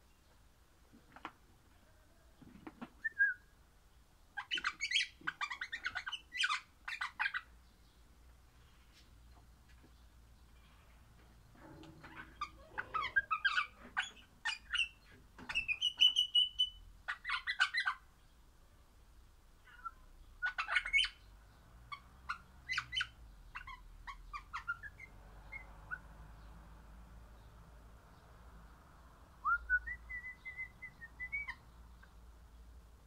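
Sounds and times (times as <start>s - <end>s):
parrot chirping and squawking: 4.4s - 7.5s, 11.6s - 18.0s, 19.6s - 21.3s, 21.9s - 26.1s.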